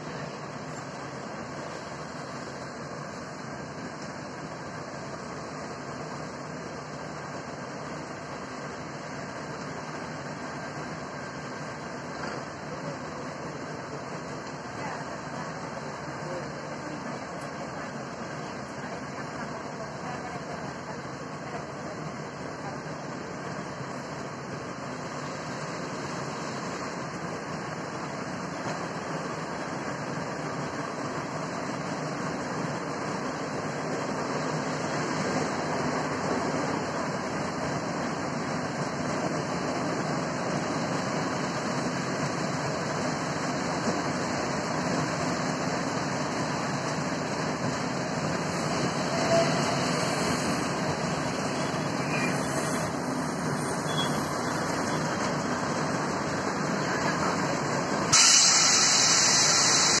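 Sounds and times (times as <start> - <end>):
electric train rumbling: 0.0 - 60.0
train hissing loudly: 39.8 - 60.0.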